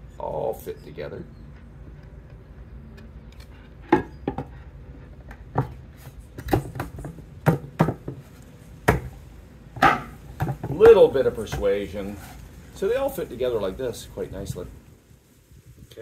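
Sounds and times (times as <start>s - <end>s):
wooden boards knocking: 6.4s - 8.3s, 8.9s - 9.2s, 9.8s - 11.6s.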